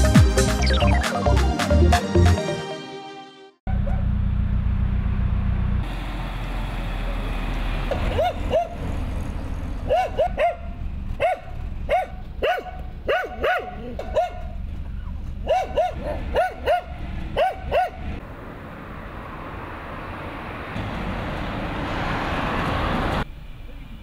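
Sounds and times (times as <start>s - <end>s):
truck passing: 3.7s - 24.0s
dog barking: 8.1s - 8.8s, 9.9s - 14.6s, 15.4s - 18.1s.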